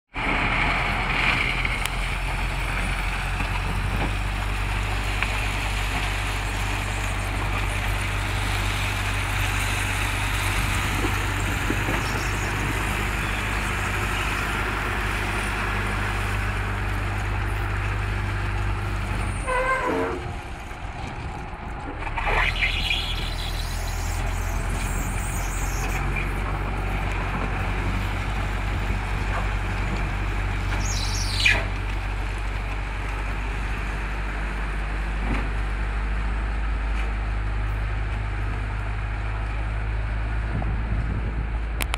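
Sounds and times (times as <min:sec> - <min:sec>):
diesel engine under load: 0:00.1 - 0:41.9
brief squeal: 0:19.3 - 0:20.3, 0:22.2 - 0:26.3.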